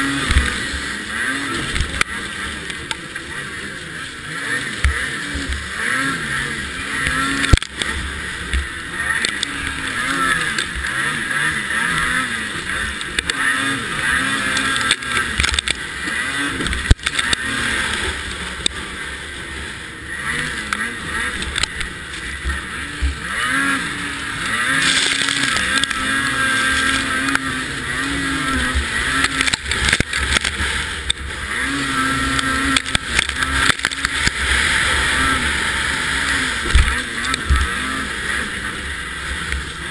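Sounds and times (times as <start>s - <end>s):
snowmobile engine revving: 0.0s - 39.9s.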